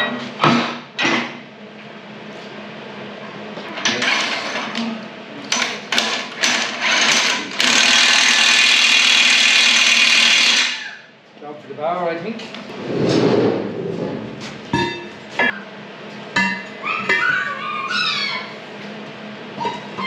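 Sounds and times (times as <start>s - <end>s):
power tool running: 6.6s - 10.8s.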